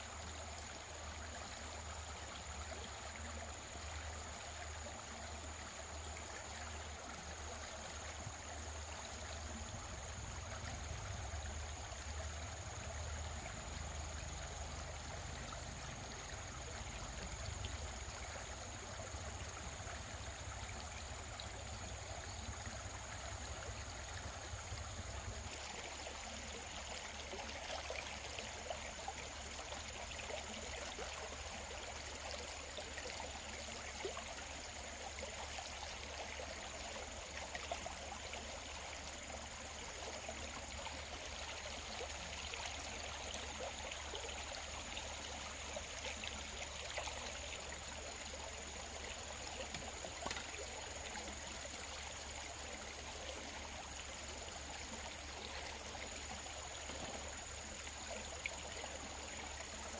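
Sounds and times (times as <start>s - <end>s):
water running and trickling: 0.0s - 59.9s
small water splashes: 36.0s - 59.9s.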